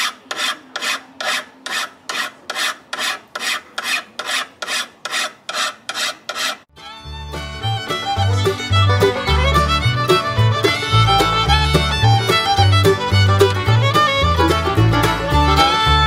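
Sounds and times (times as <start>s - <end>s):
file rasping on steel blade: 0.0s - 6.7s
fiddle music: 6.7s - 16.0s.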